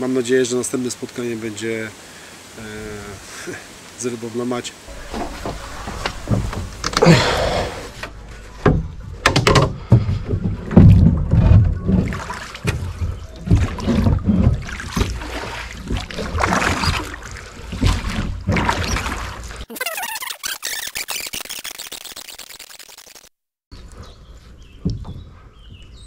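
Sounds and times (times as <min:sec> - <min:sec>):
water splashing from rowing: 0:04.8 - 0:19.7
low rumbling bumps on microphone: 0:04.9 - 0:09.2.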